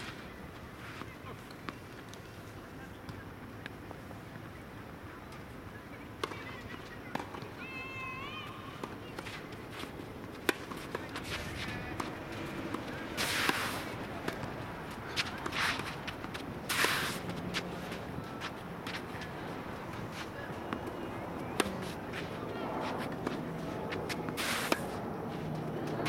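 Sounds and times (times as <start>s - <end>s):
tennis ball bouncing: 6.2s - 7.4s, 8.8s - 25.0s
shoes scuffing on court: 8.8s - 26.0s
racket striking tennis ball: 10.4s - 25.0s.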